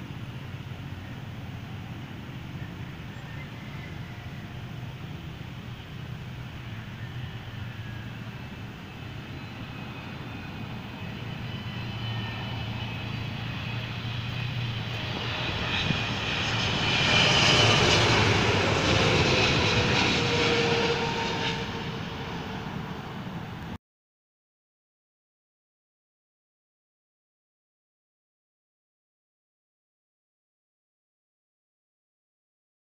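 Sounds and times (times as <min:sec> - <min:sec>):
airliner passing overhead: 0:00.0 - 0:23.8.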